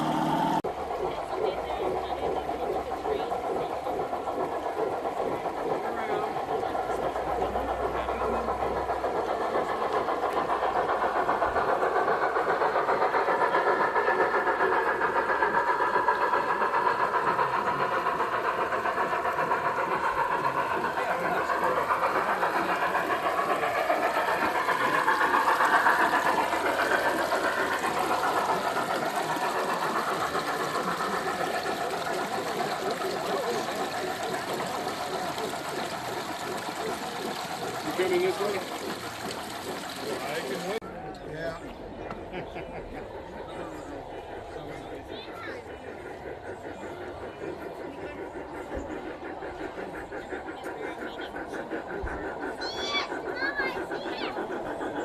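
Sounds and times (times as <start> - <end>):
model diesel engine sound: 0.0 - 4.3
people talking: 0.0 - 55.0.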